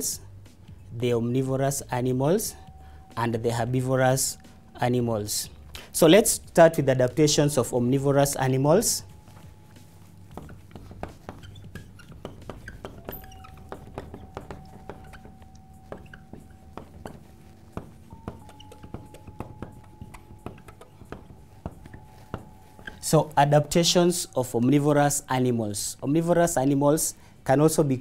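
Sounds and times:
marker pen writing on whiteboard: 3.4 - 25.2.

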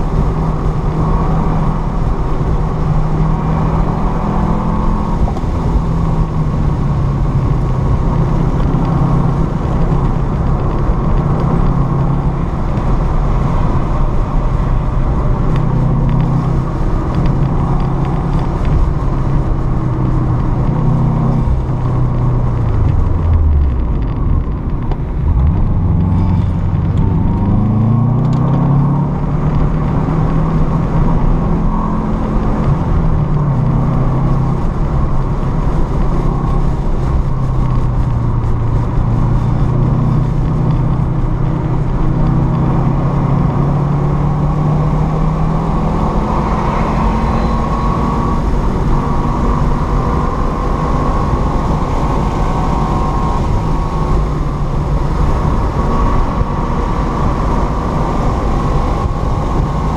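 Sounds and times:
car engine under load: 0.0 - 59.9.

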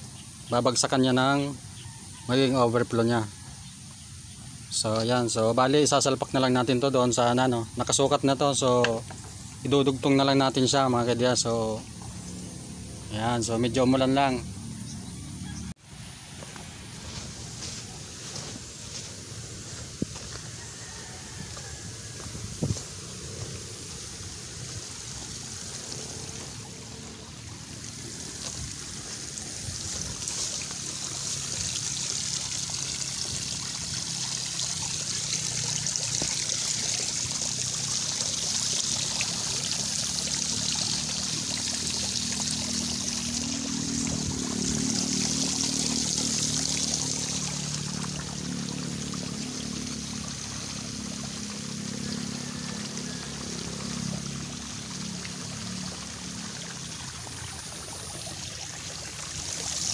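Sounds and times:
water trickling from a pipe: 17.0 - 59.9.

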